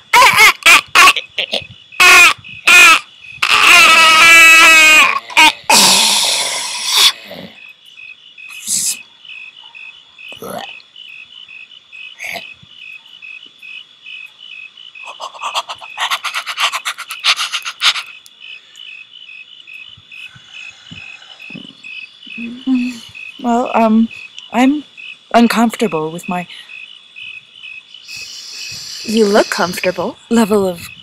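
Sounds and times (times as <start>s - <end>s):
crickets chirping: 0.0s - 31.0s
scratchy noise: 15.0s - 18.2s
soft knocks: 21.5s - 21.8s.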